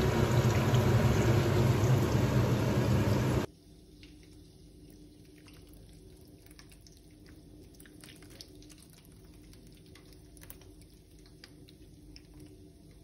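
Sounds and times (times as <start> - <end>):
low hum: 0.0 - 3.5.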